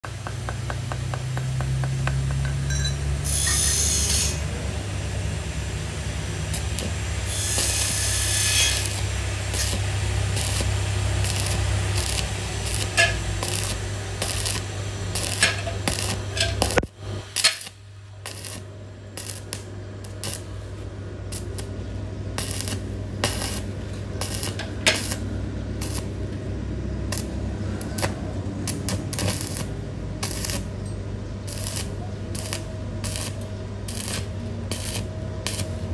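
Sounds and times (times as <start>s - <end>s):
low electrical hum: 0.0s - 35.9s
sharp metal clinks and taps: 1.4s - 3.6s.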